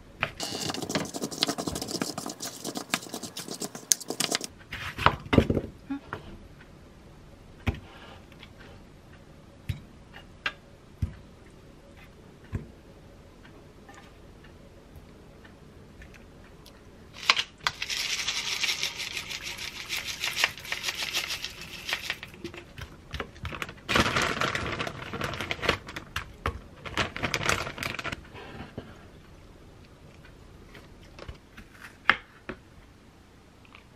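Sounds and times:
granola and packaging crackling: 17.2s - 28.2s.

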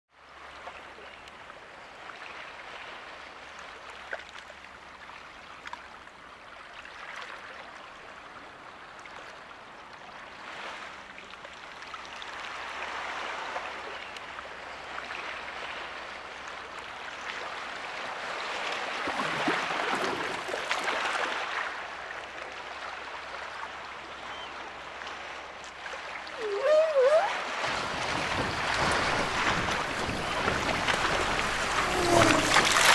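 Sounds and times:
sea waves washing: 24.7s - 32.9s.

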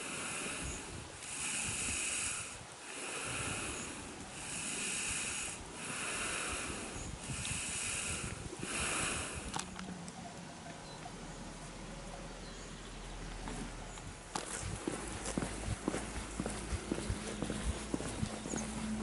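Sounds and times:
cow breathing: 0.0s - 9.9s.

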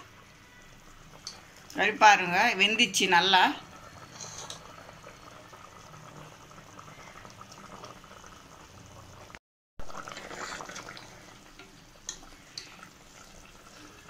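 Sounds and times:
curry bubbling at a simmer: 0.0s - 14.0s
steel ladle stirring gravy: 10.0s - 14.0s.

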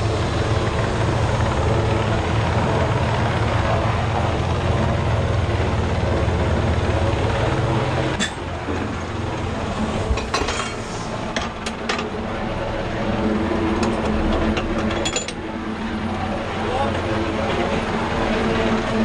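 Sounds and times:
low engine drone: 0.0s - 19.0s.

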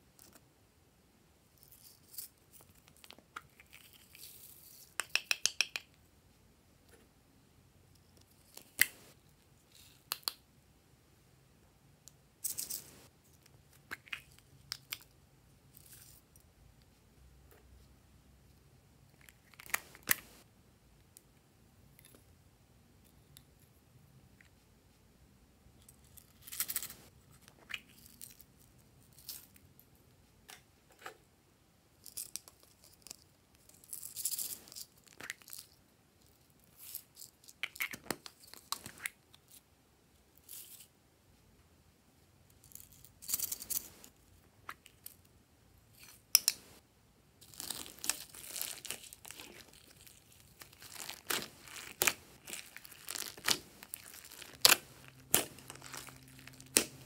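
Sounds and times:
slime rustles and clicks: 47.4s - 57.0s
sticky slime crackling and squelching: 47.4s - 57.0s.

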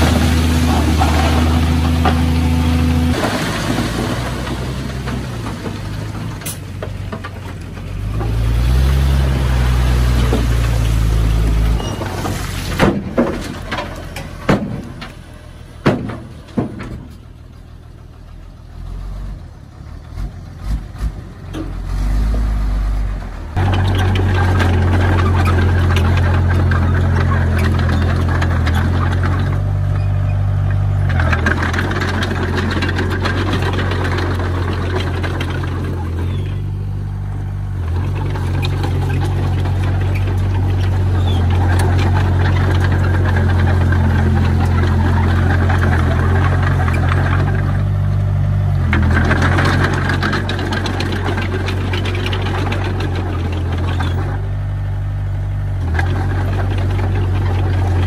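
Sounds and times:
diesel engine revving: 0.0s - 17.4s, 18.2s - 58.0s
sharp knocks and clanks: 11.5s - 17.3s.

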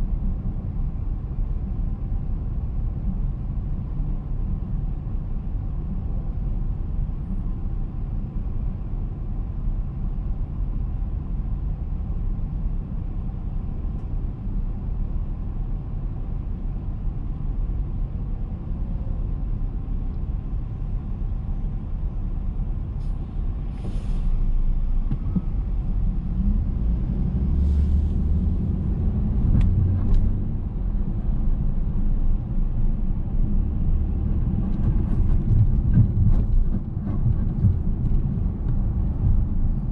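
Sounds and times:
car engine rumble: 0.0s - 39.9s
short hisses: 23.0s - 24.4s.

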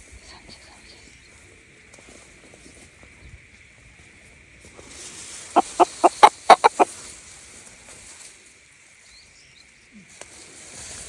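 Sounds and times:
chicken clucking: 5.6s - 6.9s.

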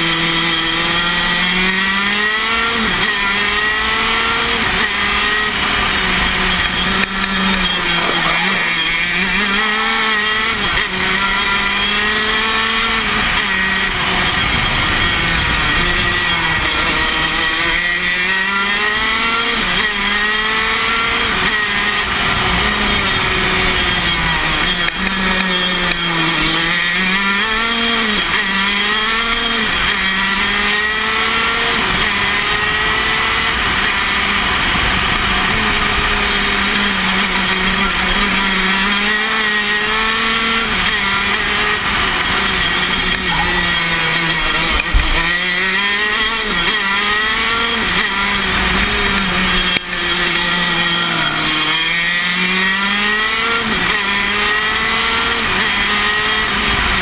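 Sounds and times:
kart engine revving: 0.0s - 57.0s.

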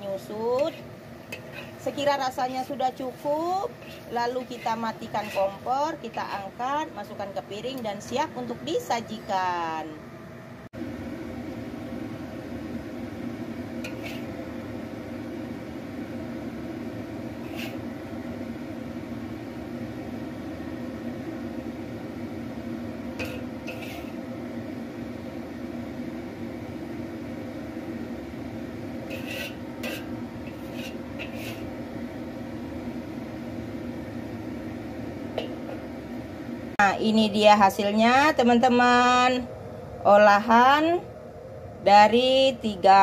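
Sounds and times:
low mechanical hum: 0.0s - 43.0s
metal spatula scraping ceramic plate: 0.6s - 1.9s, 3.7s - 5.7s, 13.8s - 14.3s, 17.4s - 17.8s, 23.2s - 24.2s, 29.0s - 31.7s.

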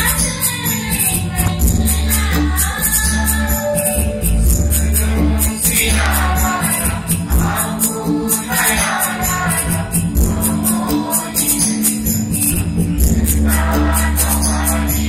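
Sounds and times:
group of singers singing: 0.0s - 15.0s
jingling percussion beat: 0.0s - 15.0s
sustained bass notes: 0.0s - 15.0s.

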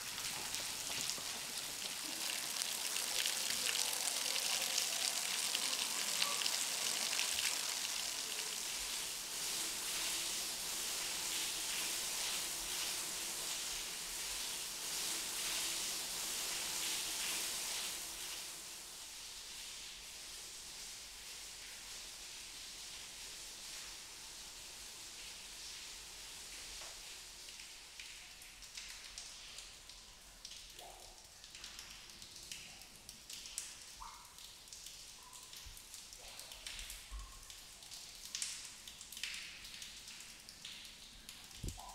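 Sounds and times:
water dripping from rock: 0.0s - 8.6s, 27.4s - 41.9s.

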